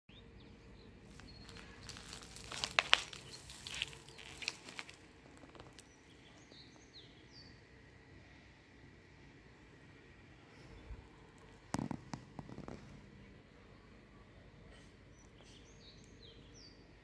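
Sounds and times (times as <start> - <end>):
bird chirps: 0.1 - 5.0, 13.8 - 16.9
dry grass crunching underfoot: 1.0 - 5.9.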